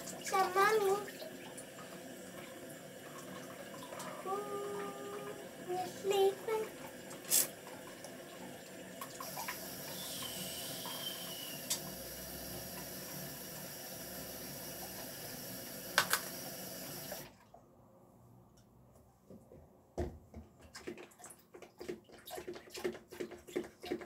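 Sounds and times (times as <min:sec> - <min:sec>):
water running from a tap: 0:00.0 - 0:17.3.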